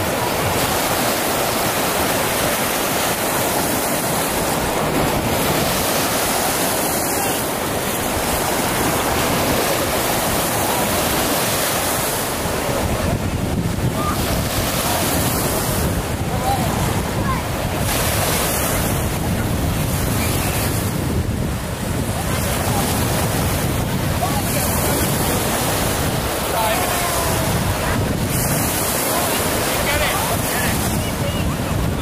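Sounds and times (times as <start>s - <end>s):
lake waves washing in shallows: 0.0s - 32.0s
wind rumbling on microphone: 0.0s - 32.0s.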